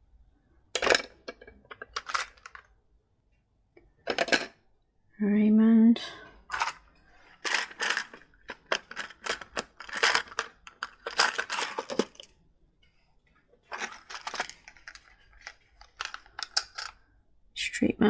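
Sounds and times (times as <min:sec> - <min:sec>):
plastic pieces rattling: 0:00.8 - 0:02.7, 0:04.0 - 0:04.5, 0:06.5 - 0:12.4, 0:13.7 - 0:17.0
plastic bag crinkling: 0:06.5 - 0:12.3, 0:13.7 - 0:17.0.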